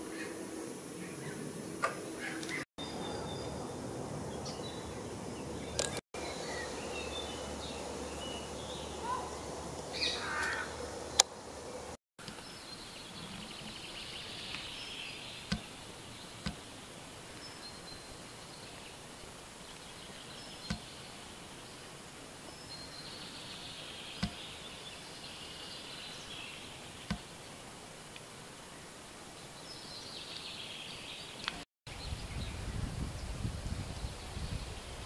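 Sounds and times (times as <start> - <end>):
steady background hiss: 0.0 - 35.0
short bird calls: 8.7 - 10.8
sharp clicks: 15.4 - 15.8.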